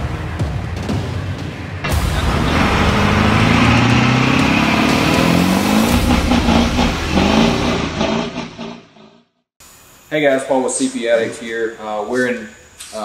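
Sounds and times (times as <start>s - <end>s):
vehicle engine revving: 1.8s - 9.0s.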